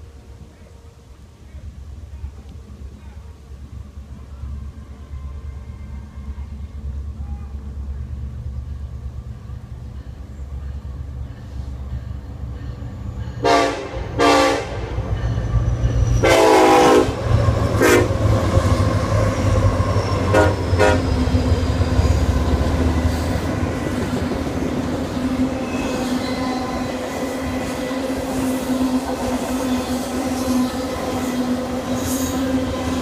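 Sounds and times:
train cars rolling on rails: 0.0 - 33.0
locomotive horn blasts: 13.4 - 15.0, 16.2 - 18.3, 20.2 - 21.2.

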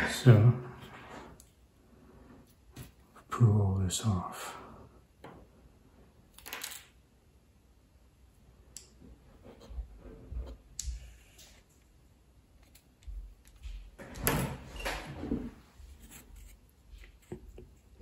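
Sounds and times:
rubbing and shuffling: 14.6 - 18.0.

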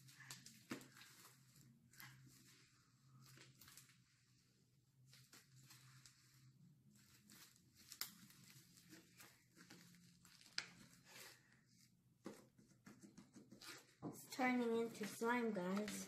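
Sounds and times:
slime crackling and squishing: 0.0 - 4.4, 5.0 - 11.4.

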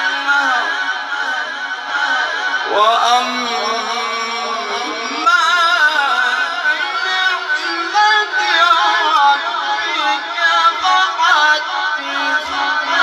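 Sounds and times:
man chanting over microphone: 0.0 - 13.0.

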